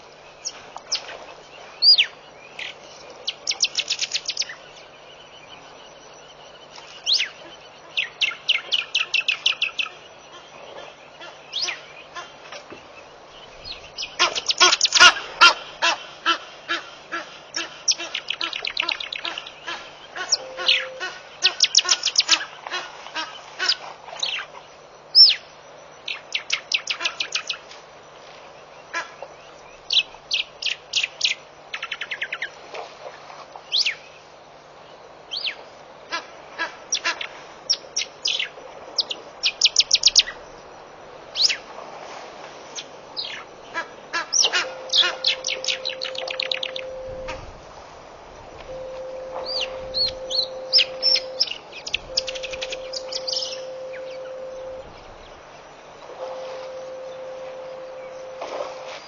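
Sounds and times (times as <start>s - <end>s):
quick high bird notes: 48.7s - 55.2s.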